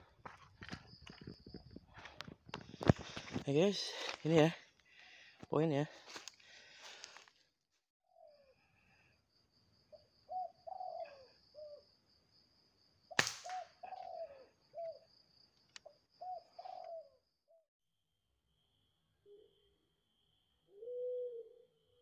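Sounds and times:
dove cooing: 9.9s - 11.9s, 13.4s - 15.1s, 16.2s - 17.3s, 20.7s - 22.0s.

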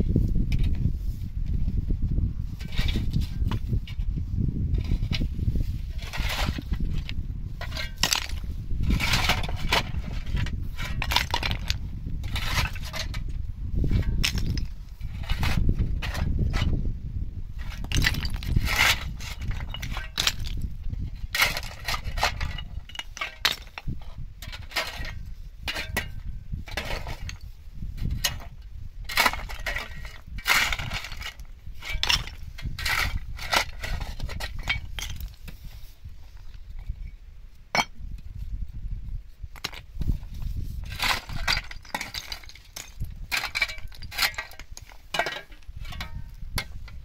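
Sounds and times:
rock fragments clattering: 7.7s - 8.5s, 14.0s - 15.4s, 17.7s - 20.7s, 21.4s - 26.1s, 29.1s - 35.4s, 40.9s - 47.0s
shovel scraping into gravel: 29.1s - 35.8s, 40.5s - 46.1s.

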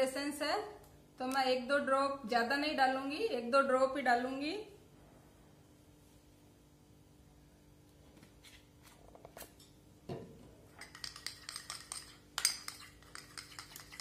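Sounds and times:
spoon clinking and scraping a bowl: 10.7s - 14.0s
spoon taps: 10.8s - 14.0s.

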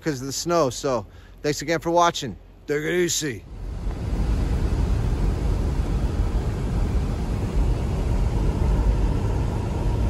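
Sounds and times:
car tyres and engine rumbling: 3.4s - 10.0s.

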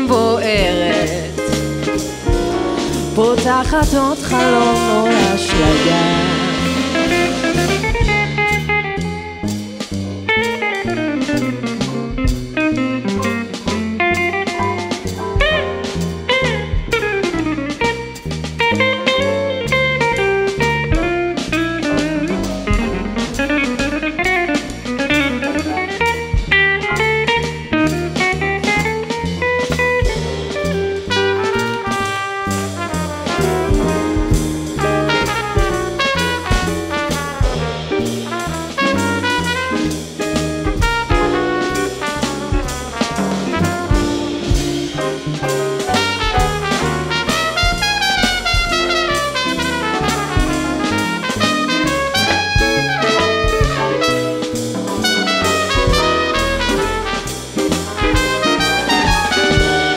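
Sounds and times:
drums: 0.0s - 59.9s
jazz band playing live: 0.0s - 59.9s
upright bass: 0.0s - 59.9s
trumpet solo: 4.2s - 9.0s, 30.4s - 59.9s
electric guitar solo: 4.3s - 32.6s, 51.7s - 59.9s.

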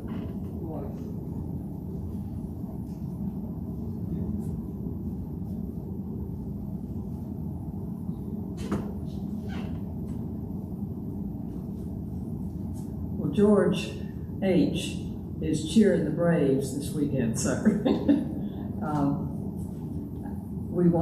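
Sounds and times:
low room hum: 0.0s - 21.0s.

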